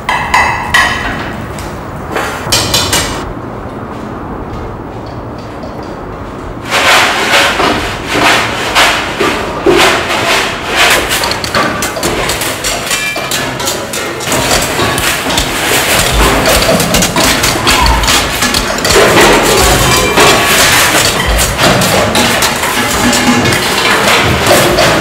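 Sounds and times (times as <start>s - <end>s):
rapid knocking and banging: 0.0s - 3.3s, 4.8s - 25.0s.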